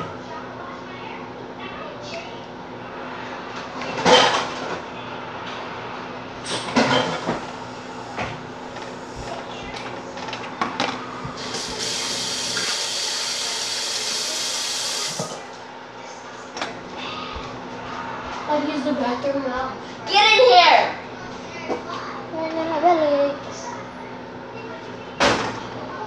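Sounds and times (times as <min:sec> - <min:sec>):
tap water running into sink: 0:11.2 - 0:15.5.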